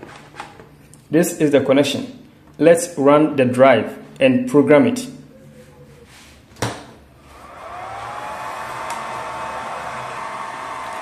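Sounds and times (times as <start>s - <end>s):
electric motor whining and humming: 7.3s - 11.0s.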